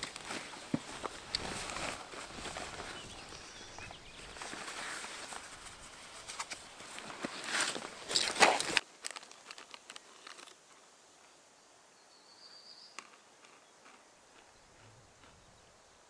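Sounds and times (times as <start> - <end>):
backpack rustling and crinkling: 0.0 - 10.6.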